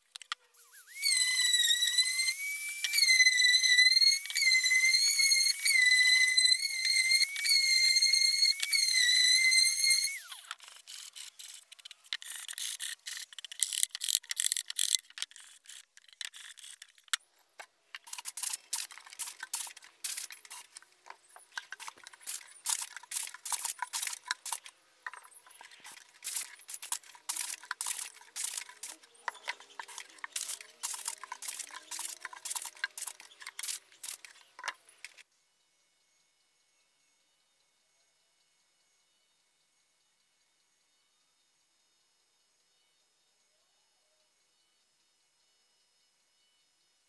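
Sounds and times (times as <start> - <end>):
sandpaper sanding wood: 29.8 - 34.3.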